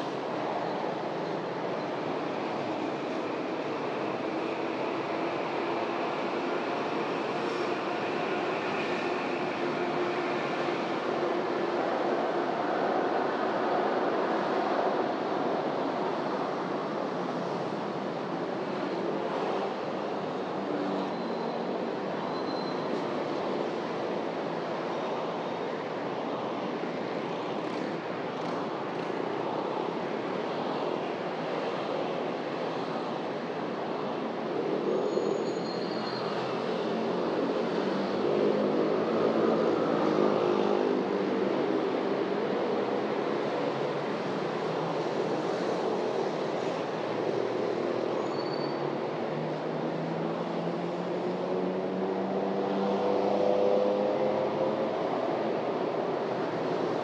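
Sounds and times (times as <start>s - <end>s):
vehicles passing: 48.9s - 57.0s.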